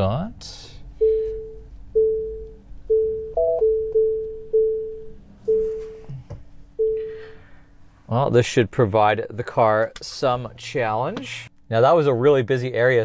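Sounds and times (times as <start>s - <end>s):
faint steady hum: 0.0s - 13.0s
park-assist ringing tone: 1.0s - 6.0s, 6.8s - 7.4s.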